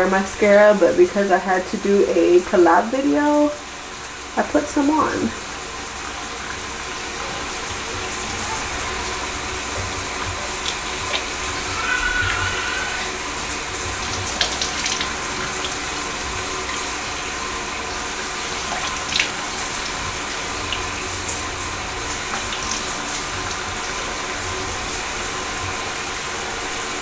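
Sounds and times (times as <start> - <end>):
faucet running into sink: 0.0 - 27.0
water splashing: 2.8 - 27.0.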